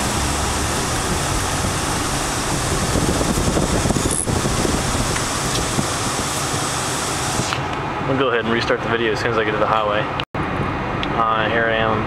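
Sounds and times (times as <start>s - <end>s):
car air blower rushing: 0.0s - 7.8s
engine and road noise: 0.0s - 12.0s.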